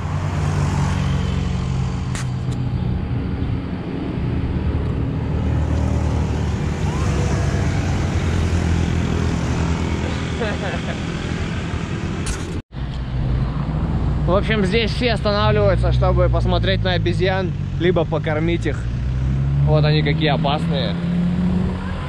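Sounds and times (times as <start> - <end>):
road traffic noise: 0.0 - 22.0
sharp click: 2.1 - 2.6.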